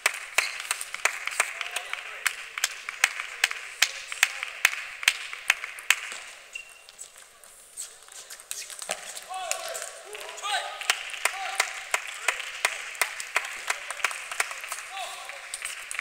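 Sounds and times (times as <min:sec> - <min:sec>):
person clapping steady beat: 0:00.0 - 0:06.4, 0:10.8 - 0:16.0
small crowd applauding: 0:00.0 - 0:06.4, 0:09.3 - 0:16.0.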